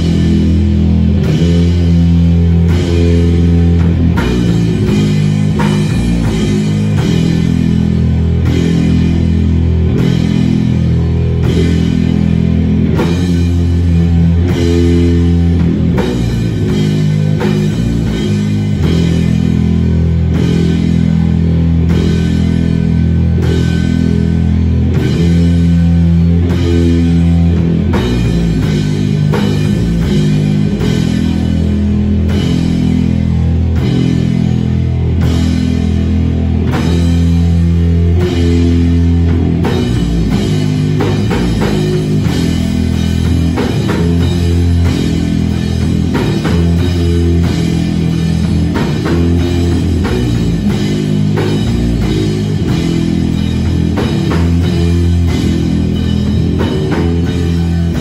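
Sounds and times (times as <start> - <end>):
drum kit beat: 0.0 - 58.0
electric guitar riffs: 0.0 - 58.0.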